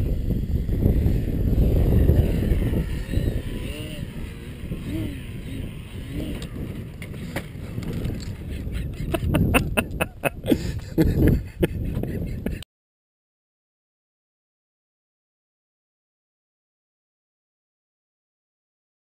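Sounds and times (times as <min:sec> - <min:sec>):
wind rumbling on microphone: 0:00.0 - 0:12.6.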